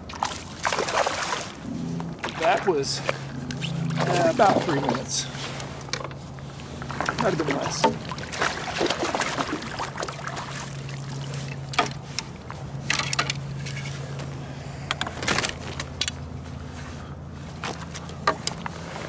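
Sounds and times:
fish splashing at the surface: 0.0 - 1.6, 6.9 - 11.5
steady low hum: 0.0 - 19.0
knocks and rattles of gear: 14.9 - 16.3.

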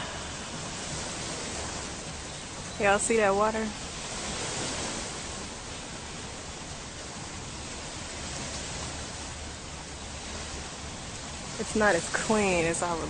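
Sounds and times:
low rumble: 0.0 - 4.2
small waves breaking on shore: 0.0 - 13.0.

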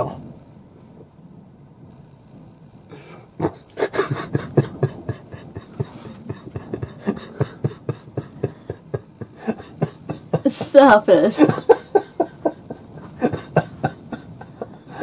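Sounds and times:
person laughing: 3.0 - 15.0.

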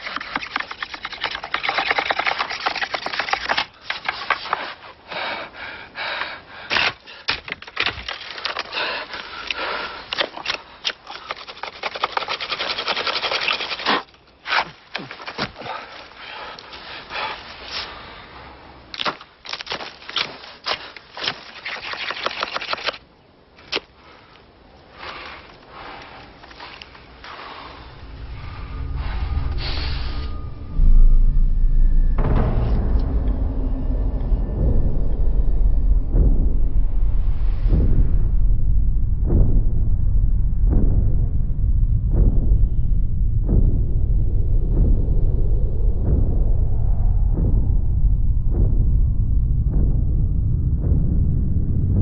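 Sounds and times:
knife whittling wood: 10.2 - 15.5.

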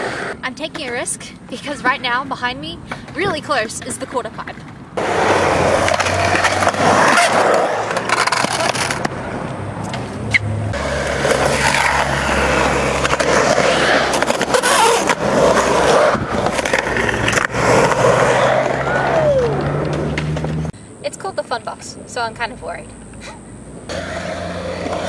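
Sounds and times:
skateboard trucks scraping metal: 0.0 - 1.1, 3.6 - 20.7, 23.9 - 25.0
skateboard wheels rolling on concrete: 0.0 - 20.8, 22.7 - 25.0.

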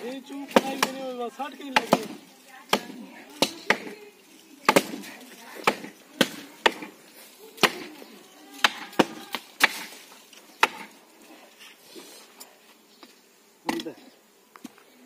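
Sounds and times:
axes chopping wood: 0.5 - 1.0, 1.8 - 4.0, 4.6 - 6.9, 7.6 - 7.9, 8.6 - 10.0, 10.6 - 10.9.

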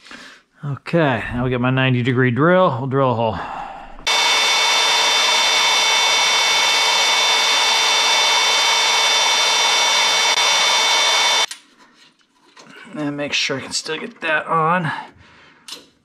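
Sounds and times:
cordless drill drilling: 4.0 - 11.5.

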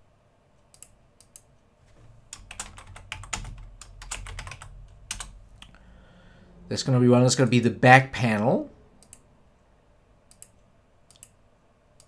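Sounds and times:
typing on computer keyboard: 2.3 - 5.4.

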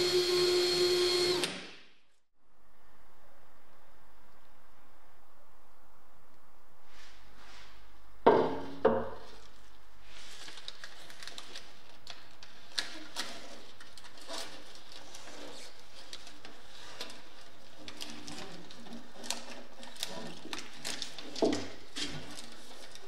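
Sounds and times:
foil tape crinkling: 9.4 - 23.0.

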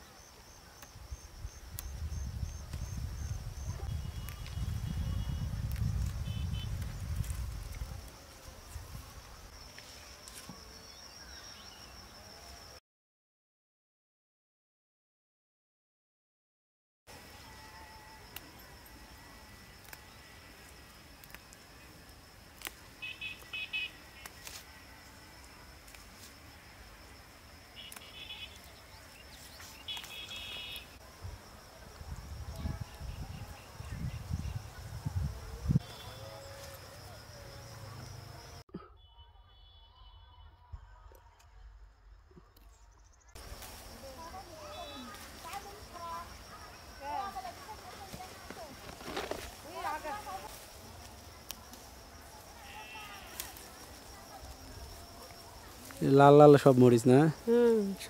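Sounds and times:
high insect drone: 17.1 - 38.6, 43.1 - 58.0.

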